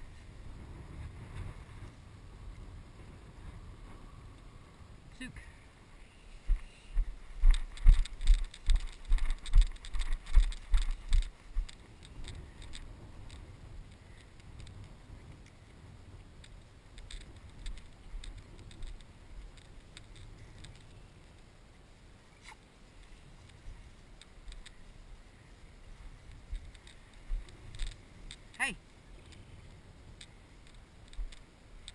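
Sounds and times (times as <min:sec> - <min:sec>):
grass rustling: 0:00.0 - 0:31.9.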